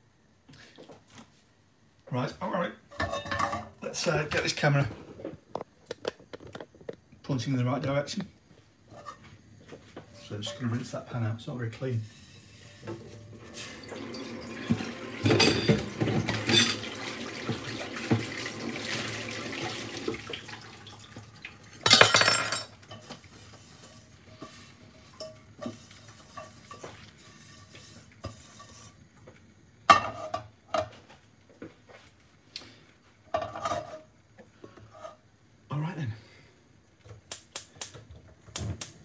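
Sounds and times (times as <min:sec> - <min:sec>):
pan clanking on metal grate: 0:02.9 - 0:03.8, 0:15.2 - 0:16.9
frying pan clattering: 0:12.7 - 0:18.5, 0:21.7 - 0:28.8
tap running: 0:13.9 - 0:21.3.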